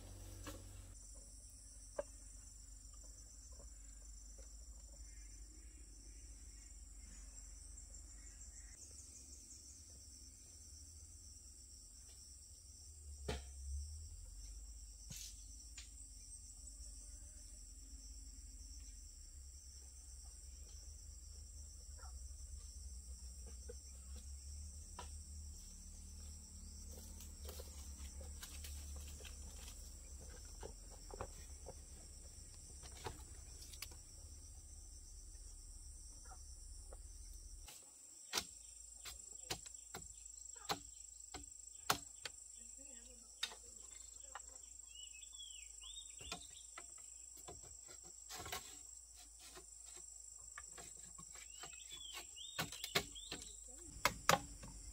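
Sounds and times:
insects chirring: 0.0 - 54.9
bamboo poles knocking: 26.9 - 34.0, 49.5 - 54.9.

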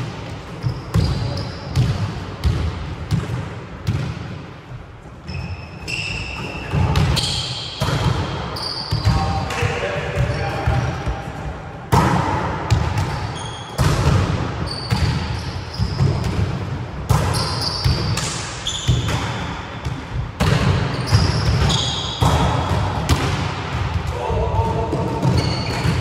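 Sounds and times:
volleyballs hit and bouncing: 0.0 - 26.0.

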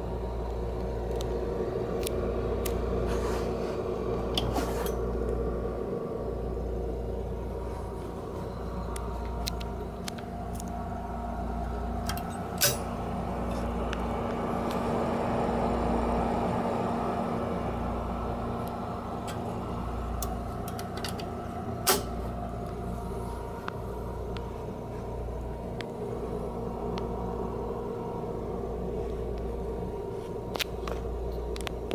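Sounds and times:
cooling fan humming: 0.0 - 31.9.

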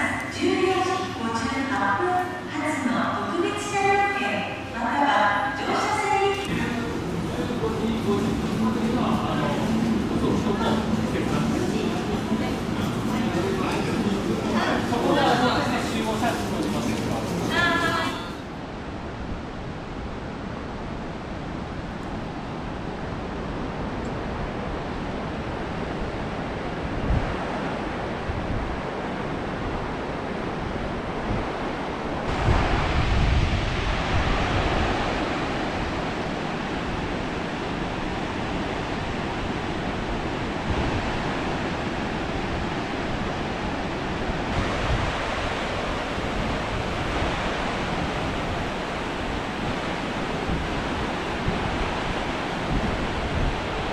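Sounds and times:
river rushing over rocks: 4.2 - 18.3
wind buffeting microphone: 5.8 - 53.9.

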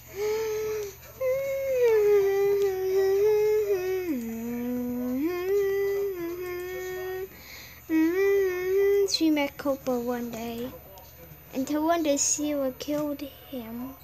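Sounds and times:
girl humming: 0.1 - 9.4.

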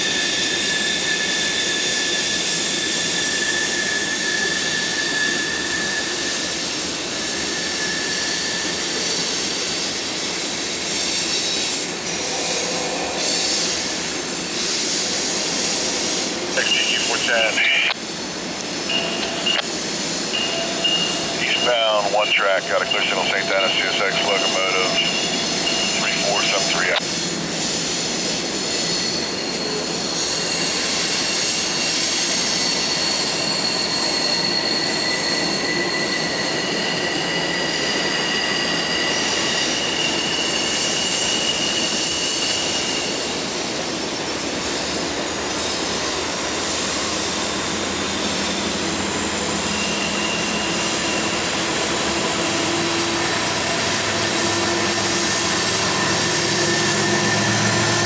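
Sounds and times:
train wheels squealing: 0.0 - 16.6, 17.2 - 26.0, 26.8 - 58.0
diesel locomotive engine running: 8.8 - 35.4, 43.2 - 58.0.

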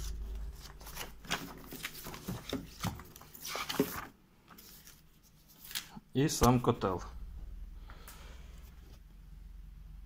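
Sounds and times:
paper pages rustling: 0.0 - 6.6.

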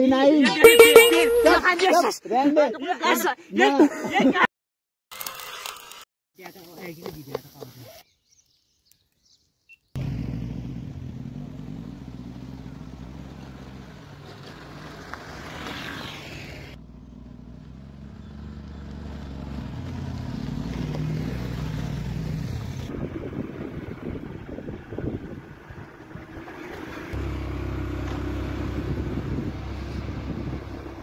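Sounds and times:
vehicle engine running: 10.0 - 15.2, 16.5 - 31.0.

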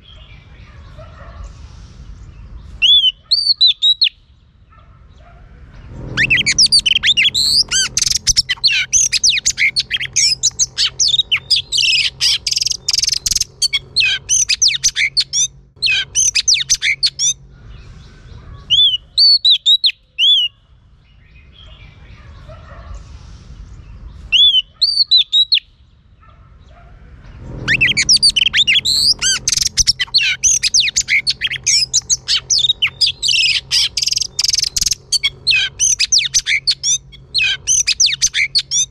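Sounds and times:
bird singing varied whistles: 2.8 - 4.2, 24.4 - 25.7.

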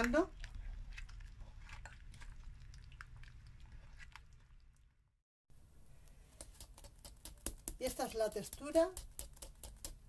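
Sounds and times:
batter squelching: 0.0 - 5.1.

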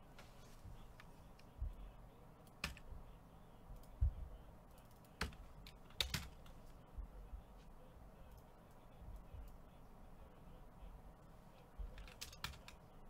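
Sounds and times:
soft low thumps: 1.5 - 1.9, 3.7 - 4.4, 6.9 - 7.6.

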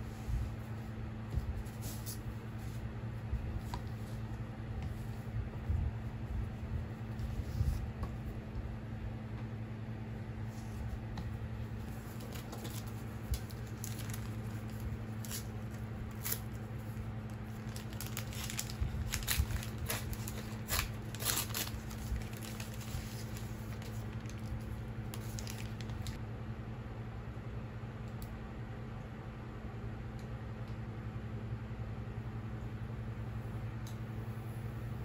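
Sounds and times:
low hum: 0.0 - 35.0
plastic film crinkling and tearing: 11.9 - 26.2.

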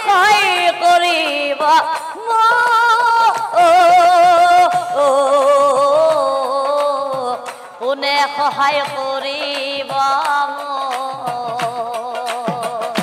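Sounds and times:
women singing devotional song: 0.0 - 13.0
hand-clapping: 9.8 - 13.0.

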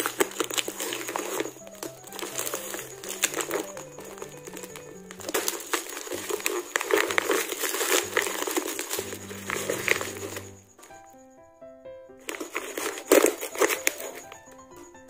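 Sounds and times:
plastic pouch crinkling: 0.0 - 10.6, 12.2 - 14.4.

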